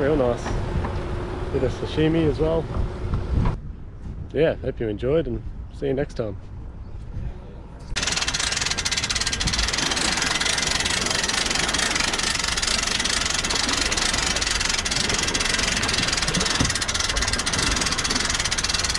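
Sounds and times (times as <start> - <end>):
winch ratchet clicking: 8.0 - 18.9.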